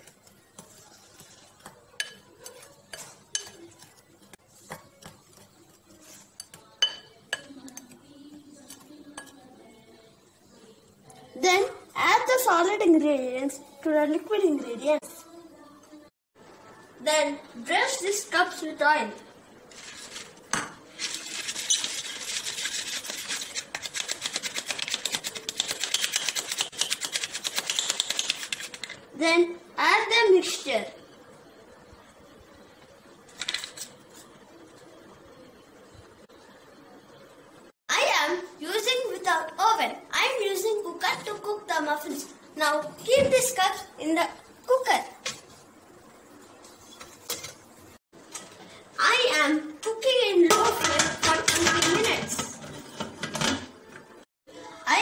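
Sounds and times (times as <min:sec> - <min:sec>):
utensil scraping and tapping bowl: 0:00.0 - 0:09.4, 0:20.1 - 0:29.0, 0:50.5 - 0:54.1
rubbing inside paper baking cup: 0:19.7 - 0:28.9.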